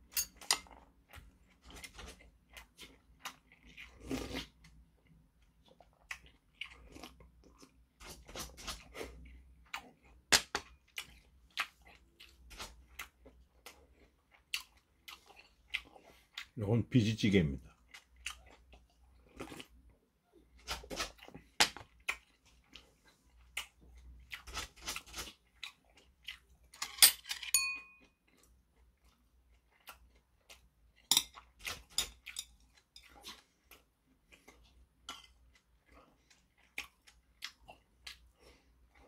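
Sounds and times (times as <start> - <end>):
chopsticks and spoon clicking on bowls: 0.0 - 0.8, 26.8 - 28.0, 31.1 - 33.1
person chewing: 0.0 - 16.6, 17.7 - 26.8, 27.8 - 39.0.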